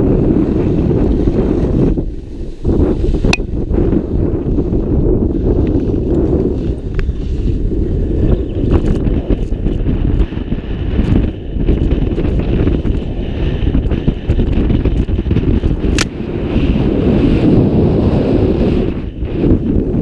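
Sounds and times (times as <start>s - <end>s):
wind buffeting microphone: 0.0s - 20.0s
skis hissing on snow: 2.1s - 3.3s
sharp click: 15.9s - 16.1s.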